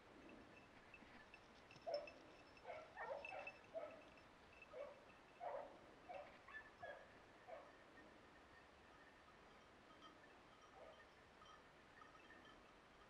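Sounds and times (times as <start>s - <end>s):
dog barking faintly: 1.9s - 4.0s.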